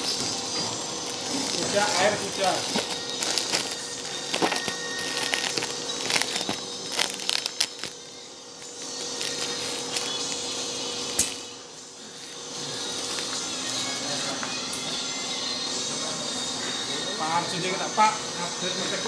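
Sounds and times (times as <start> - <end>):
steady mechanical hum: 0.0 - 19.0
plastic bag crinkling: 1.0 - 10.5.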